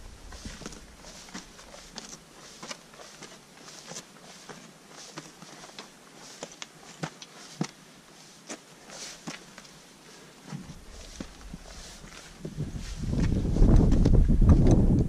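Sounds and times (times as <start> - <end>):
boots crunching on gravel path: 0.0 - 9.8, 10.5 - 14.1.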